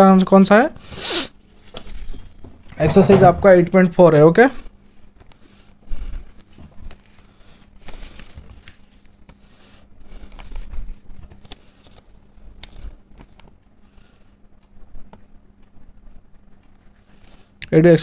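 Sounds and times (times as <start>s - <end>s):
paper rustling: 1.5s - 3.2s, 4.8s - 13.6s.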